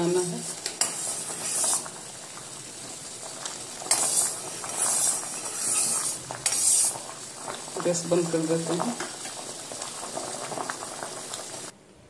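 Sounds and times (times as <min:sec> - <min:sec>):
syrup boiling and bubbling: 0:00.0 - 0:11.8
metal spoon stirring: 0:00.4 - 0:02.0, 0:03.6 - 0:07.7.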